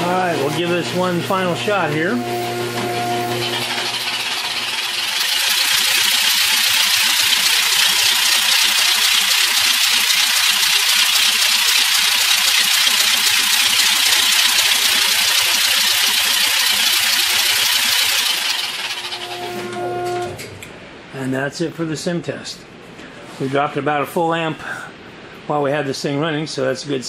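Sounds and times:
engine valvetrain rattling: 0.0 - 20.4.

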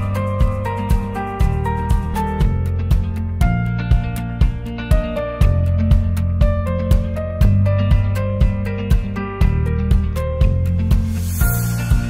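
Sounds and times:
music with steady beat and bass: 0.0 - 12.0.

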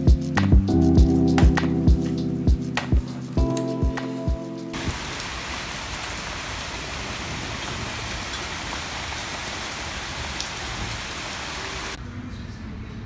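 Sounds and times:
rain on paved patio: 4.7 - 12.0.

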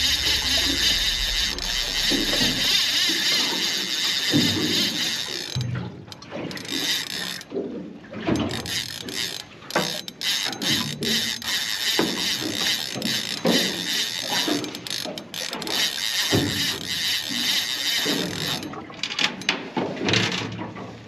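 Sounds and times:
low thumps: 0.0 - 3.3
fishing reel drag ratcheting: 0.0 - 7.6, 8.2 - 19.5.

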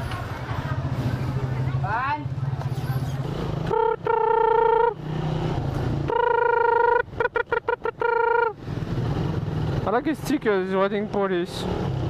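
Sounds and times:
motorcycle horn blasts: 3.7 - 5.0, 6.1 - 8.5.

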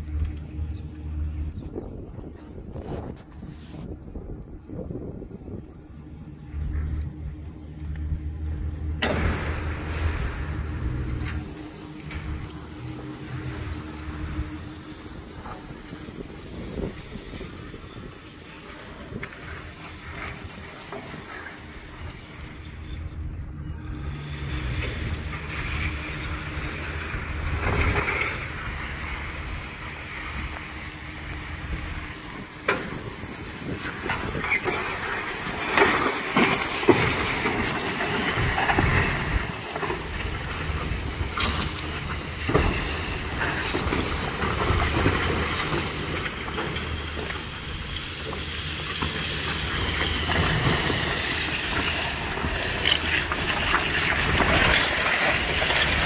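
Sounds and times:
low rumble: 0.0 - 17.8
metal frame scraping over dirt: 6.0 - 56.0.

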